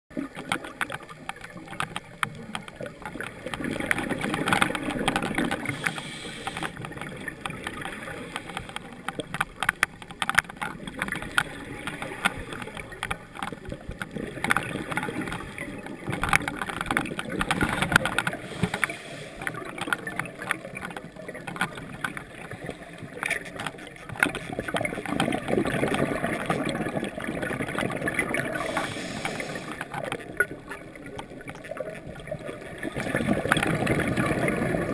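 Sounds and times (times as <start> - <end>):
regulator exhaust bubbles underwater: 0.1 - 9.7, 10.3 - 34.9
sharp clicks underwater: 0.1 - 34.9.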